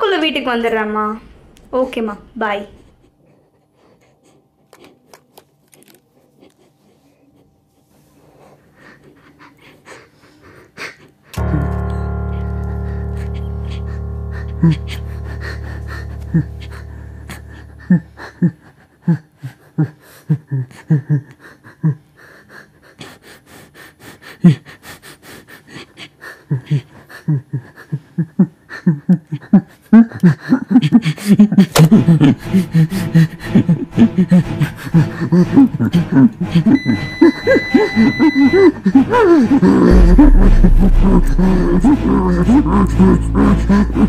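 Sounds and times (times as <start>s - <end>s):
person breathing rhythmically: 6.4s - 11.2s, 12.7s - 44.0s
steady high tone: 11.4s - 18.2s, 39.9s - 44.0s.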